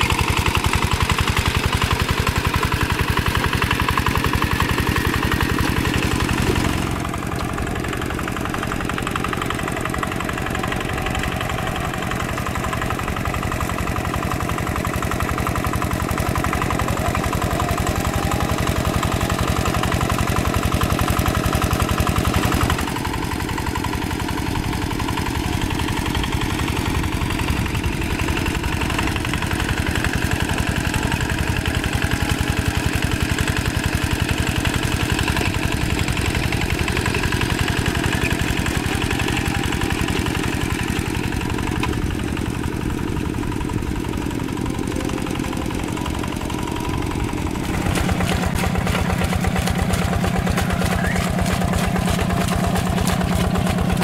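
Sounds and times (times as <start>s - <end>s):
hand tractor diesel engine running: 0.0s - 54.0s.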